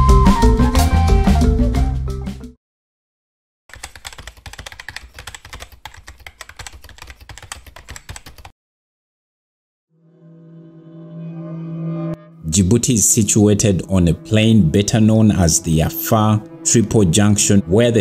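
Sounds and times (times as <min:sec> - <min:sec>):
rapid keyboard typing: 0:03.7 - 0:08.5.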